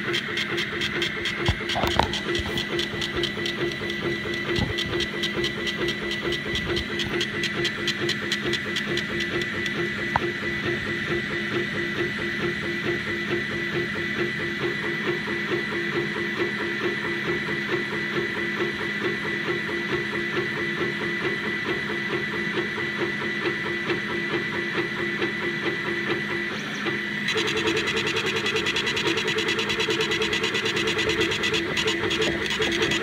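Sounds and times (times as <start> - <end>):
laser head pulsing: 0.0 - 10.3, 27.3 - 33.0
stepper motors whining: 0.0 - 11.3, 26.4 - 33.0.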